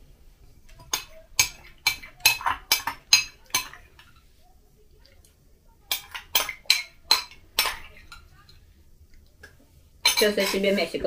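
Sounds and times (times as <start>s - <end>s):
spoon clinking against glass bowl: 0.8s - 3.8s, 5.9s - 8.3s, 10.0s - 10.7s.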